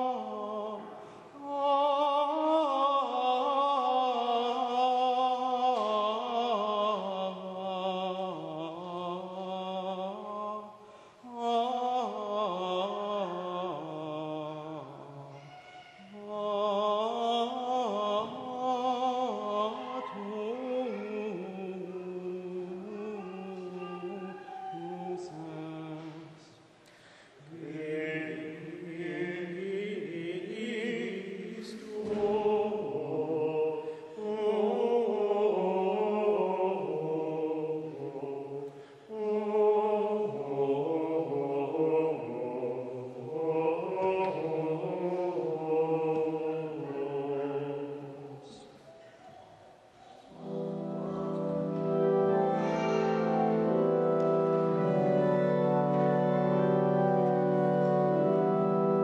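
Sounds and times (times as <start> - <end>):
male choir singing plainchant: 16.1 - 26.4, 27.4 - 48.6.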